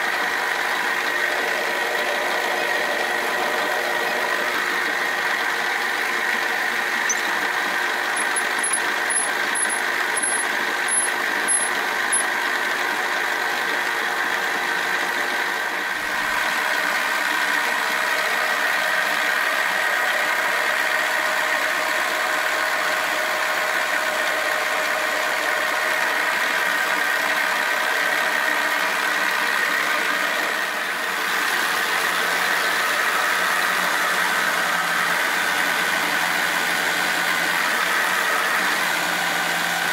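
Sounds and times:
milling machine whine: 0.0 - 13.0, 28.5 - 39.9
drill boring into metal: 3.0 - 12.4.

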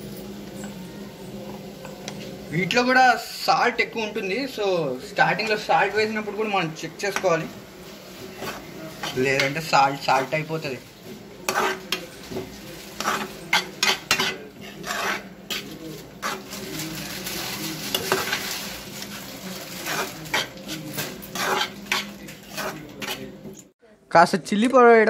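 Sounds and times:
frying sizzle: 0.0 - 23.6
spoon scraping frying pan: 5.2 - 23.7.

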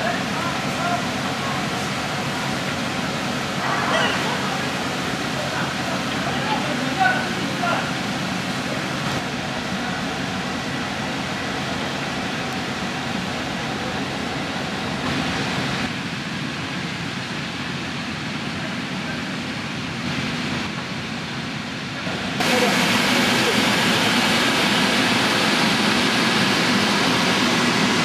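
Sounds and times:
rushing air noise: 19.3 - 28.0.

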